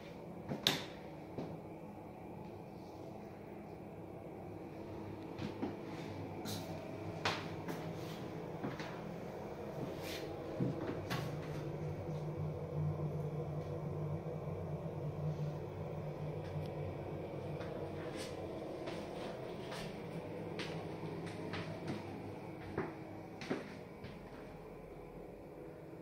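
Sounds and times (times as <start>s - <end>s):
low room hum: 0.0s - 26.0s
footsteps: 5.3s - 11.7s, 17.6s - 24.6s.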